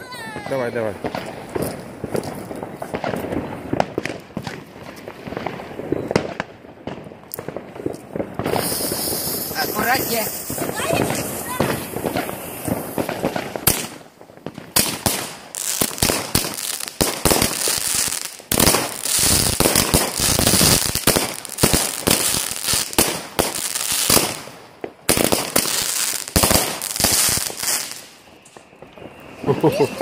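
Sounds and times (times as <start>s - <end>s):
firework launch bangs: 0.3s - 17.8s
crackling stars hissing: 7.9s - 13.7s, 26.6s - 30.0s.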